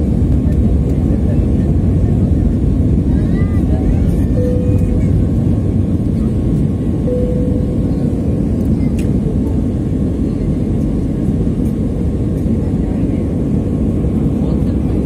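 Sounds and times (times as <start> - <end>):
jet engines rumbling in cabin: 0.0 - 15.0
brief steady tone: 4.3 - 5.0, 7.0 - 8.3.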